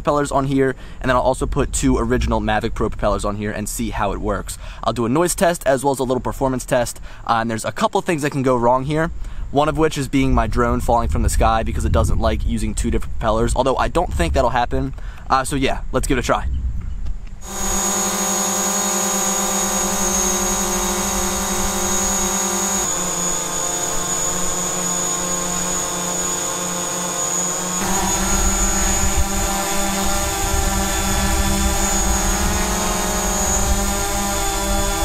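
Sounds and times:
low wind rumble: 0:09.7 - 0:17.8, 0:27.6 - 0:35.0
drone propeller hum: 0:17.4 - 0:35.0
high motor whine: 0:17.4 - 0:35.0.

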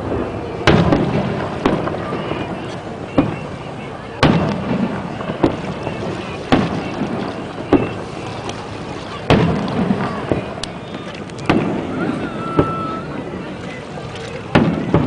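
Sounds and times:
firework shells booming: 0:00.0 - 0:03.5, 0:04.2 - 0:08.3, 0:09.2 - 0:12.9, 0:14.5 - 0:15.0.

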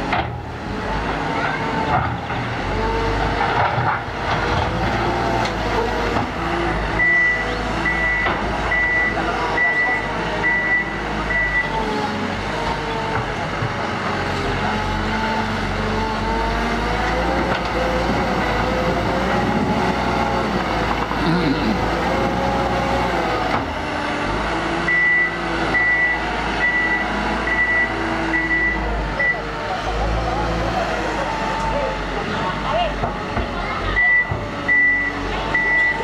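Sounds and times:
diesel engine revving: 0:00.0 - 0:36.0
reverse alarm beeping: 0:07.0 - 0:11.8, 0:24.9 - 0:29.4, 0:34.0 - 0:36.0.

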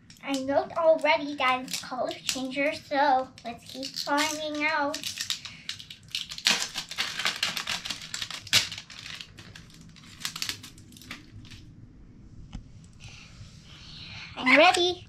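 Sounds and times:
crinkly plastic packaging tearing: 0:00.3 - 0:02.8, 0:03.4 - 0:11.6
packaging snap: 0:03.8 - 0:11.6.

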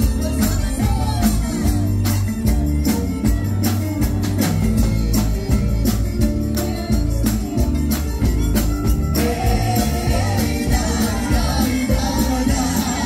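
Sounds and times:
fast drum beat: 0:00.0 - 0:13.0
live band music: 0:00.0 - 0:13.0
person singing: 0:09.1 - 0:13.0.

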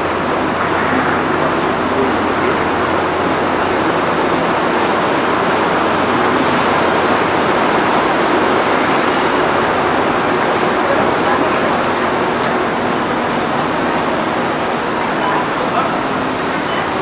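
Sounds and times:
vehicle rumble and hiss: 0:00.0 - 0:17.0.

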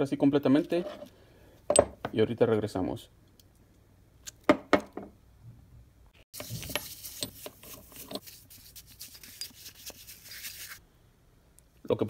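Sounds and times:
bristle brush scrubbing metal: 0:06.4 - 0:10.8.

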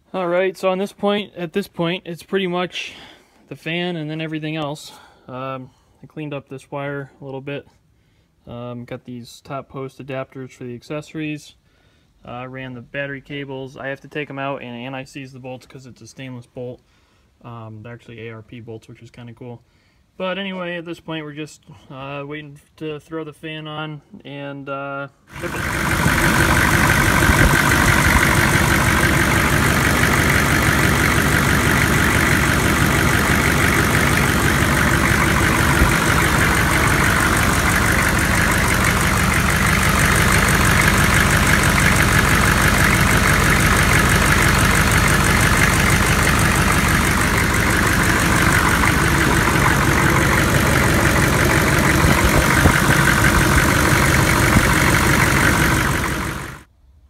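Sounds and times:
diesel engine idling: 0:25.3 - 0:56.7.

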